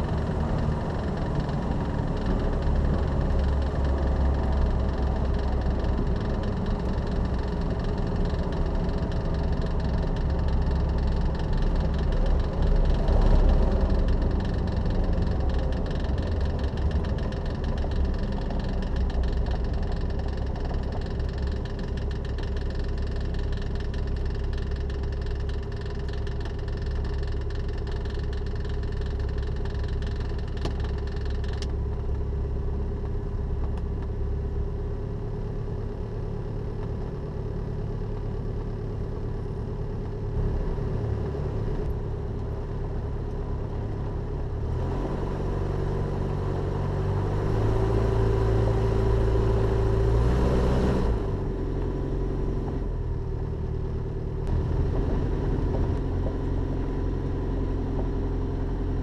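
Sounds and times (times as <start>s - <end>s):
propeller aircraft engine running: 0.0s - 59.0s.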